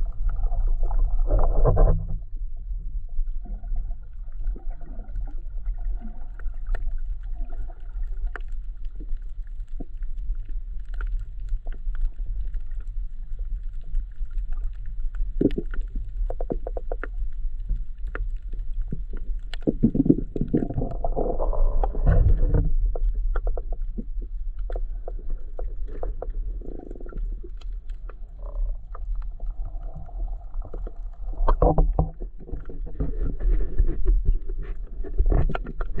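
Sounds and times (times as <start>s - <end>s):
muffled water noise: 0.0s - 36.0s
underwater low rumble: 0.0s - 36.0s
sharp clicks underwater: 14.2s - 36.0s.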